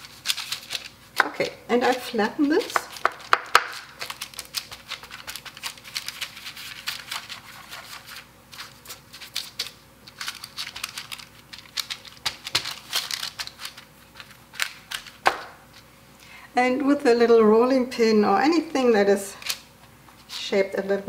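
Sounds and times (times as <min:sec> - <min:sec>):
parchment paper crinkling: 0:00.0 - 0:15.5.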